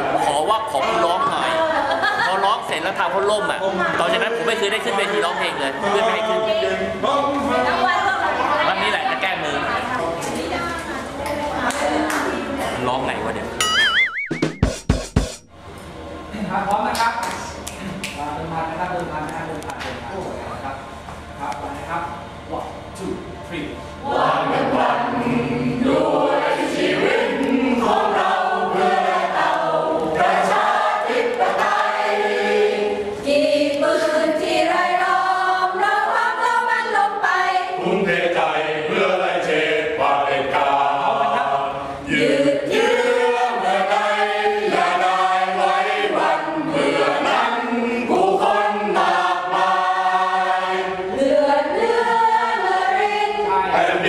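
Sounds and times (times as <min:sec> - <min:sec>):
mixed choir singing unaccompanied: 0:00.0 - 0:10.3, 0:24.0 - 0:54.0.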